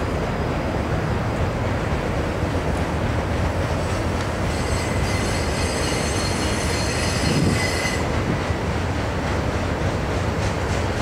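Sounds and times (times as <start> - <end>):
train wheels rumbling on rails: 0.0 - 11.0
metallic wheel squeal: 4.4 - 8.2.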